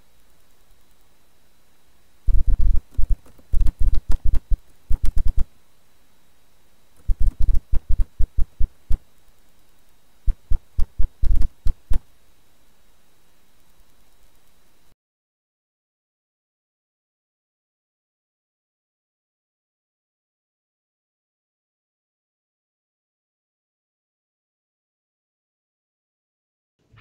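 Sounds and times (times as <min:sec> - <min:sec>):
sharp clicks and knocks with thumps: 0:02.3 - 0:05.5, 0:07.0 - 0:12.1.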